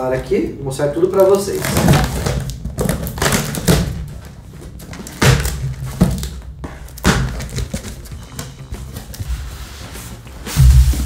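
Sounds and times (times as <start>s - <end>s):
cardboard scraping and rustling: 1.1s - 11.0s
dull thuds: 10.5s - 11.0s.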